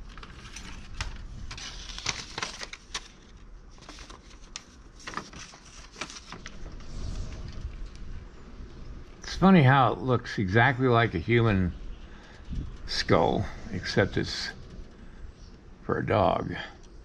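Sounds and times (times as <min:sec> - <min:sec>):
paper rustling and crinkling: 0:00.0 - 0:08.1.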